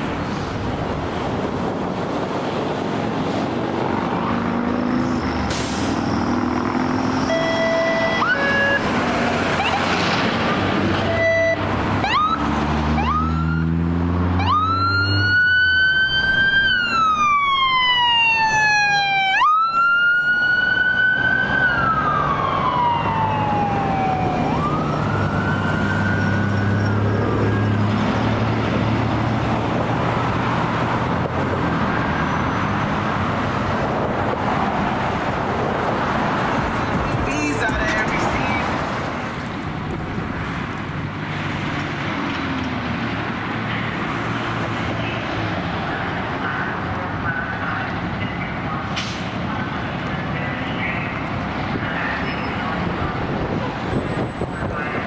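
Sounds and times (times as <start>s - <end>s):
truck engine accelerating: 0.0s - 55.0s
horn blasts: 7.2s - 8.8s, 11.1s - 11.6s.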